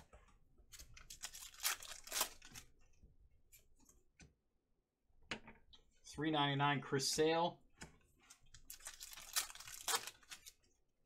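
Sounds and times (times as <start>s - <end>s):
plastic foil pack tearing: 1.0s - 2.6s, 8.7s - 10.6s.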